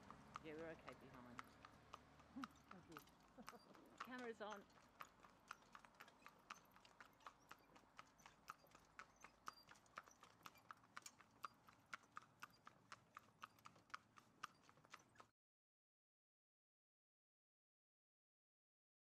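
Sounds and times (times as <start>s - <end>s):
hooves clip-clopping on tarmac: 0.0s - 15.3s.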